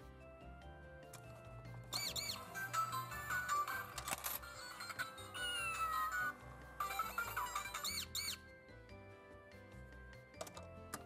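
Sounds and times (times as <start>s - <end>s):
squeaky mouse chirps: 1.9s - 2.7s, 7.3s - 8.5s
electronic toy jingle: 1.9s - 8.5s.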